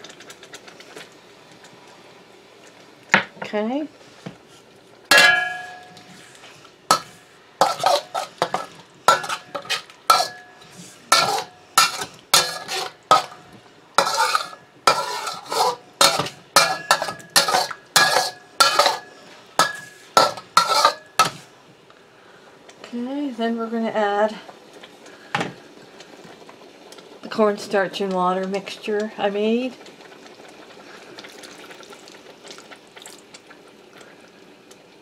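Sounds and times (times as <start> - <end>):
ladle clanking on metal: 5.1 - 6.1, 6.9 - 13.4, 14.0 - 21.4
metal ladle scraping a wok: 5.1 - 13.4, 14.0 - 21.4.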